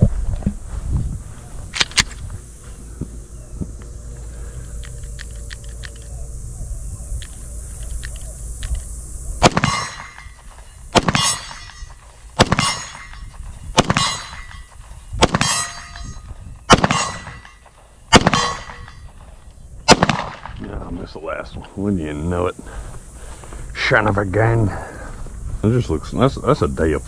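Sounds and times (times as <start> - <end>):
pistol shots: 9.4 - 10.4, 11.0 - 11.8, 12.4 - 13.2, 13.8 - 14.5, 15.2 - 15.9, 16.7 - 18.9, 19.9 - 20.6
metallic ring of steel target: 9.4 - 19.1.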